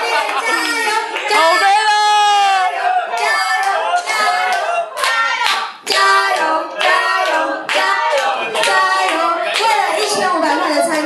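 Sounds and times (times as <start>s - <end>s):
high-pitched cheering shouts: 0.0s - 5.4s
people clapping: 0.0s - 11.0s.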